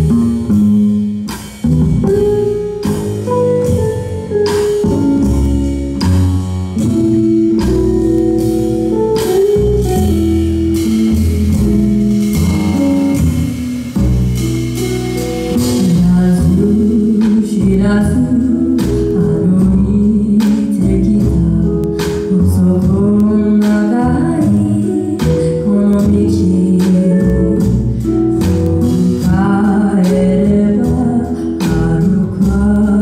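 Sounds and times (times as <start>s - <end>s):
drum kit: 0.0s - 33.0s
electric guitar melody: 0.0s - 33.0s
upright double bass: 0.0s - 33.0s
person singing: 15.6s - 28.0s.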